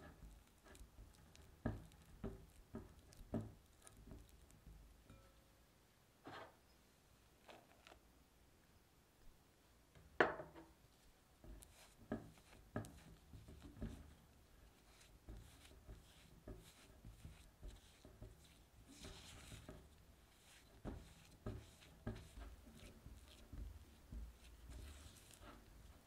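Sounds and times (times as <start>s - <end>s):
spatula scraping glass bowl: 11.4s - 26.0s.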